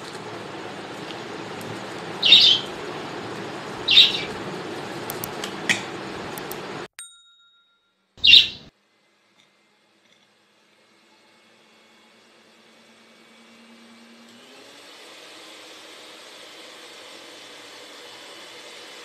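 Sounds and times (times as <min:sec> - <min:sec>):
bird chirping: 0:02.2 - 0:02.7, 0:03.8 - 0:04.4, 0:08.2 - 0:08.7
ding-like tone: 0:07.0 - 0:08.0.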